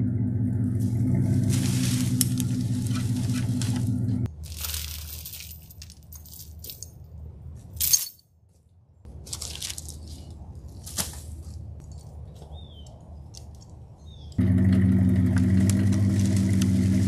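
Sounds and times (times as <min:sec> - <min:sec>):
low steady hum: 0:00.0 - 0:08.1
dry branches crackling and snapping: 0:00.8 - 0:06.0, 0:09.1 - 0:13.9, 0:14.6 - 0:17.0.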